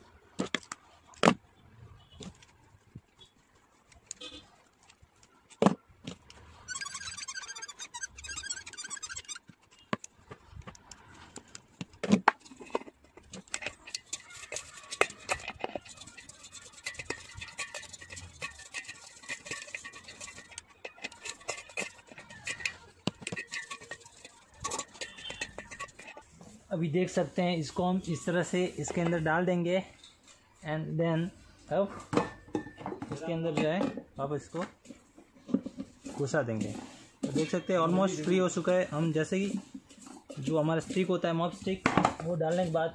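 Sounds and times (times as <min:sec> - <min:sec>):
rapid high rattle: 0:06.7 - 0:09.4, 0:13.3 - 0:26.4
metal knocking on metal: 0:13.3 - 0:26.3.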